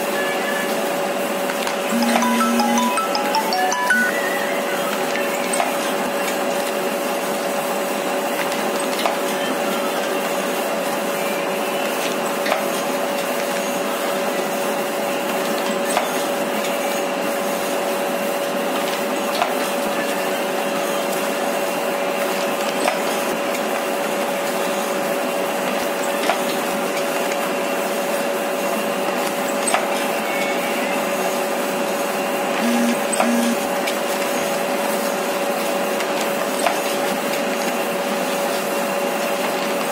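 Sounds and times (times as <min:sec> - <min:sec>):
machine hum: 0:32.6 - 0:33.7.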